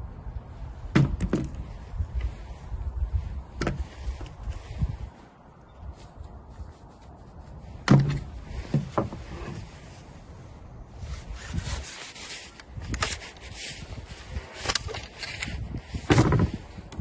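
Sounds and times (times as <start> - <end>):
gloved hands rubbing on gun: 5.8 - 7.8, 11.0 - 16.1.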